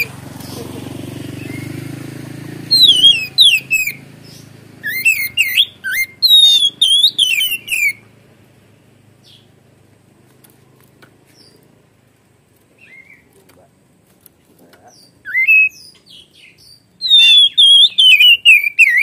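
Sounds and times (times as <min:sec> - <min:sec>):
bird singing whistled notes: 0:01.3 - 0:08.1, 0:12.8 - 0:13.3, 0:14.9 - 0:19.0.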